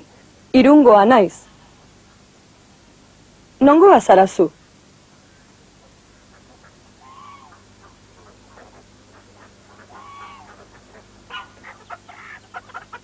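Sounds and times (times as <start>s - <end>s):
fowl calling: 5.2s - 13.0s
hen clucking: 5.8s - 13.0s.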